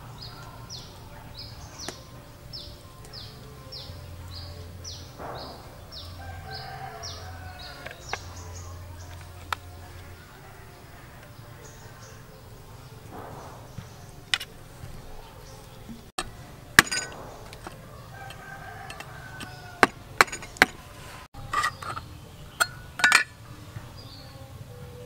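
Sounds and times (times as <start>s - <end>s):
cleaver cutting tin can lid: 16.2s - 20.8s, 21.4s - 23.4s.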